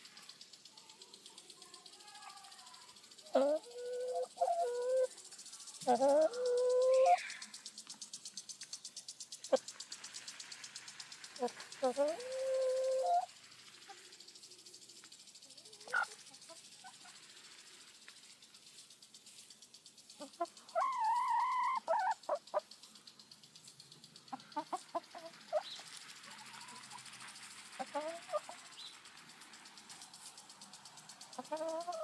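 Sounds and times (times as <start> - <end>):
hen wavering call: 3.2 - 5.2, 5.8 - 7.5, 11.4 - 13.3, 20.2 - 22.6
hens clucking: 3.3 - 5.1, 5.8 - 7.3, 11.4 - 14.0, 15.8 - 17.2, 20.1 - 22.8, 24.3 - 28.6, 31.3 - 32.0.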